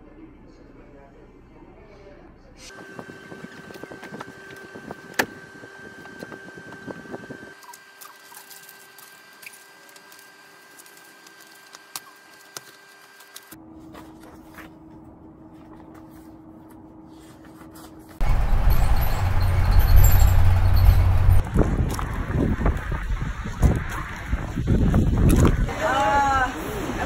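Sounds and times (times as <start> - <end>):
paper rustling: 7.6 - 18.2.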